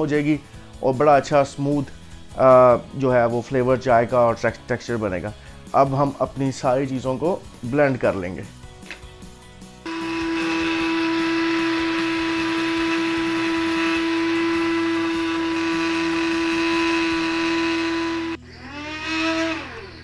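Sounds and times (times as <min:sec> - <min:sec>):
spice grinder motor whining: 0:09.9 - 0:20.0.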